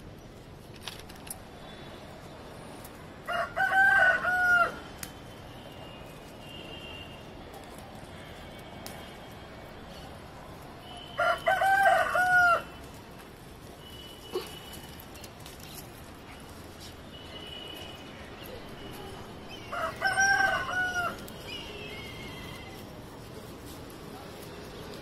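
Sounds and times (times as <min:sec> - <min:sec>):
rooster crowing: 0:03.3 - 0:04.8, 0:11.1 - 0:12.7, 0:19.6 - 0:21.2.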